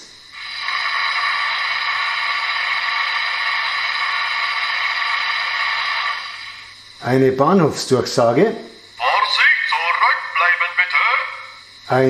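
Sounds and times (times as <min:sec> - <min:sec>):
hiss of sand blowing from loudspeaker: 0:00.0 - 0:07.2.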